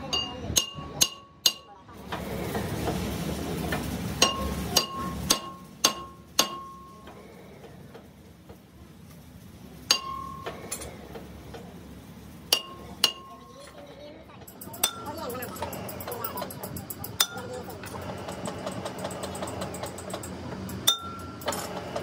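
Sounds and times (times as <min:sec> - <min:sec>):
hammer clanking on steel wheel: 0:00.0 - 0:01.7, 0:04.2 - 0:07.2, 0:09.9 - 0:10.9, 0:12.5 - 0:13.4, 0:14.5 - 0:22.0.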